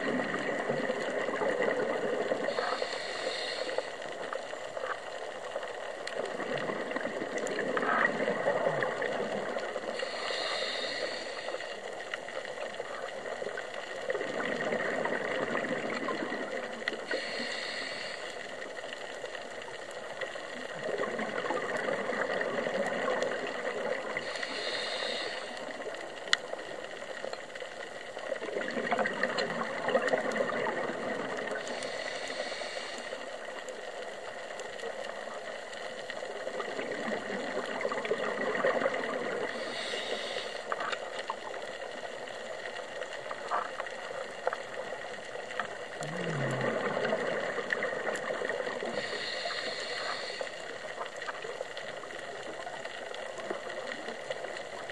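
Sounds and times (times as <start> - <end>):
regulator inhale hiss: 0.4 - 5.2, 8.7 - 12.7, 15.9 - 19.4, 23.3 - 26.6, 31.4 - 33.8, 39.1 - 42.4, 47.6 - 51.4
gurgling exhaust bubbles: 45.8 - 50.0.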